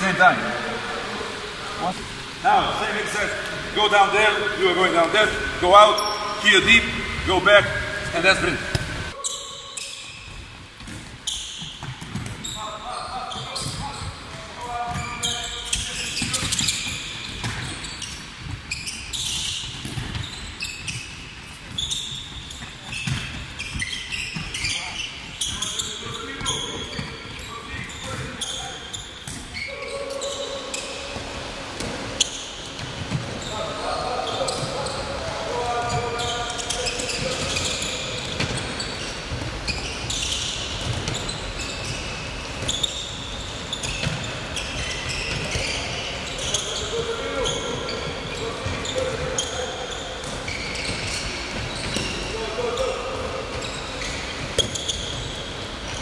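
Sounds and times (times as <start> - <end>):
shoes squeaking on wooden floor: 2.8 - 10.5, 11.1 - 56.0
handball bouncing: 8.0 - 9.2
balls bouncing on wooden floor: 21.6 - 24.9.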